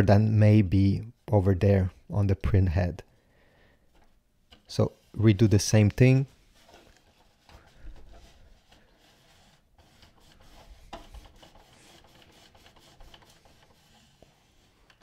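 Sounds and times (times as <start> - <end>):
printer carriage sliding and rubbing: 5.8 - 15.0.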